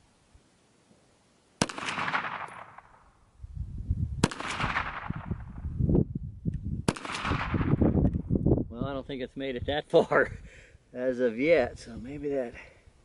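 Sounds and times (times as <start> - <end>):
pistol shots echoing: 1.6 - 3.0, 4.2 - 5.2, 6.9 - 7.8.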